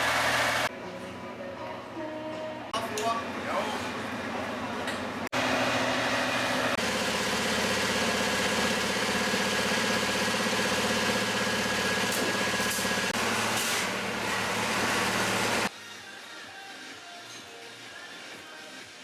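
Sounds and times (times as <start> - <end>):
diesel engine idling: 5.4 - 15.7.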